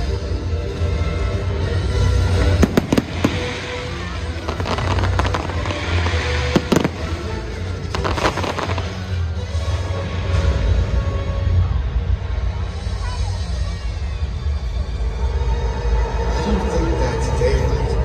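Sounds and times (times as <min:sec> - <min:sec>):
fireworks bursting with sharp bangs: 0:02.3 - 0:10.9.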